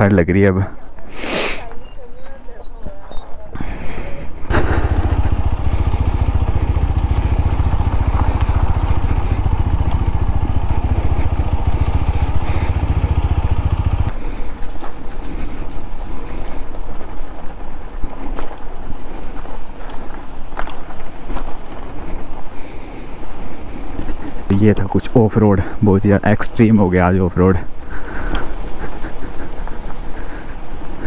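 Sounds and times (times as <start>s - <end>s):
motorcycle engine running: 4.3s - 19.4s.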